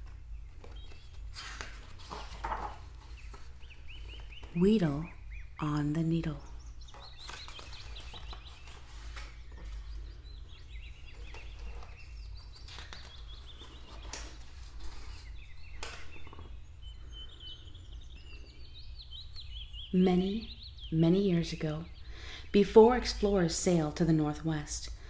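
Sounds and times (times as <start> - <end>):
book pages turning: 0.0 - 4.6, 6.9 - 16.6
small birds chirping: 0.0 - 25.0.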